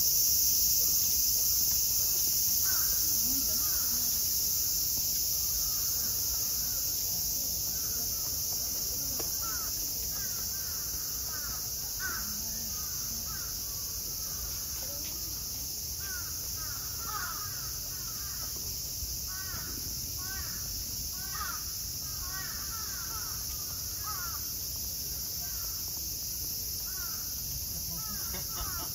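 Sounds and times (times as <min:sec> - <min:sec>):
cicadas hissing: 0:00.0 - 0:28.9
crows cawing: 0:02.6 - 0:03.0, 0:05.4 - 0:06.8, 0:09.4 - 0:14.6, 0:16.0 - 0:18.5, 0:19.3 - 0:24.5, 0:26.9 - 0:27.3, 0:27.9 - 0:28.9.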